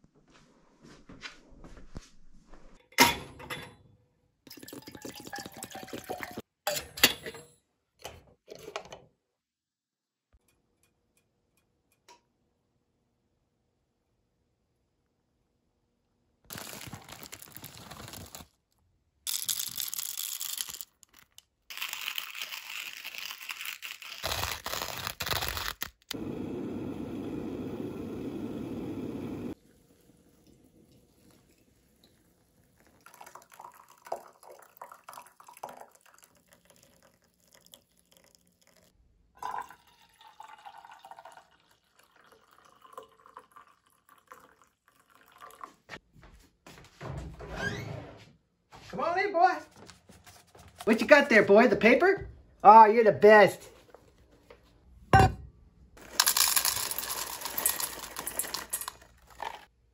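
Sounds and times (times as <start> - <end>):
coffee pouring into mug: 4.5 - 6.5, 28.6 - 45.9, 56.0 - 59.7
water pouring from kettle: 4.5 - 6.5, 29.1 - 45.9.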